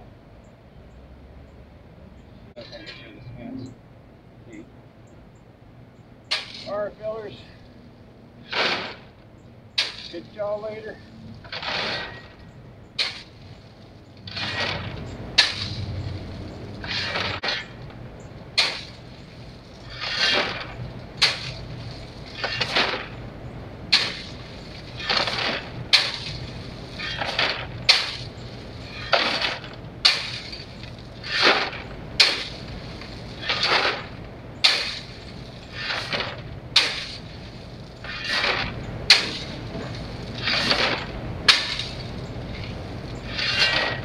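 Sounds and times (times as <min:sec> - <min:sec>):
sharp shovel clack: 0:06.3 - 0:06.8, 0:08.4 - 0:09.1, 0:09.8 - 0:12.4, 0:13.0 - 0:13.4, 0:14.3 - 0:16.2, 0:16.8 - 0:17.8, 0:18.6 - 0:19.0, 0:19.9 - 0:21.8, 0:22.4 - 0:23.2, 0:23.9 - 0:32.7, 0:33.4 - 0:37.3, 0:38.0 - 0:44.0
shovel scraping gravel: 0:06.3 - 0:07.7, 0:08.4 - 0:09.2, 0:09.8 - 0:23.2, 0:23.9 - 0:44.0.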